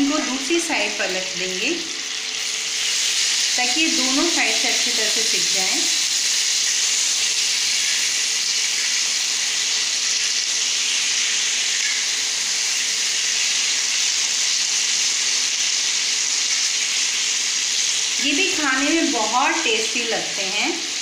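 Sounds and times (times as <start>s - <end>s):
oil sizzling in a pan: 0.0s - 21.0s.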